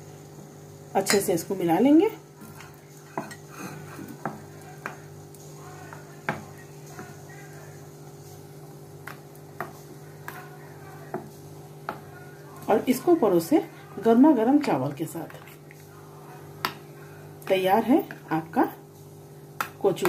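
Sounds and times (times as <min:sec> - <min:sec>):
spoon clinking against metal bowl: 0:01.0 - 0:01.3.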